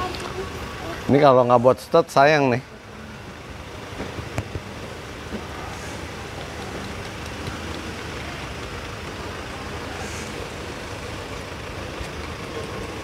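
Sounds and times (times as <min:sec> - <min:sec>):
hiss: 0:05.3 - 0:07.9, 0:09.6 - 0:11.5.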